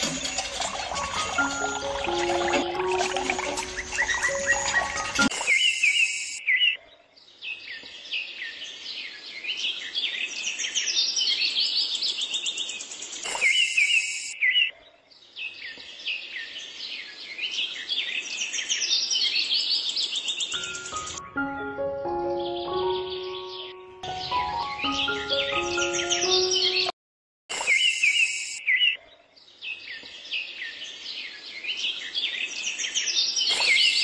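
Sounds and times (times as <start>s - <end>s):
small birds chirping: 3.4s - 21.4s, 22.2s - 26.9s, 27.6s - 34.0s.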